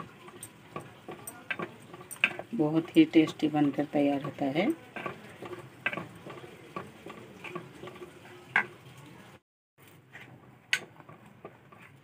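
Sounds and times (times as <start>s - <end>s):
thick mixture bubbling: 0.0s - 9.4s, 10.0s - 12.0s
wooden spoon stirring in pot: 0.0s - 12.0s.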